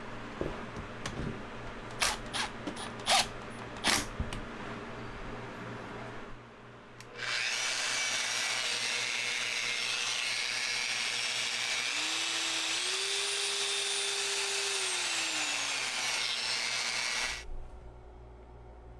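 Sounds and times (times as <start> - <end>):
angle grinder motor whine: 7.1 - 17.4.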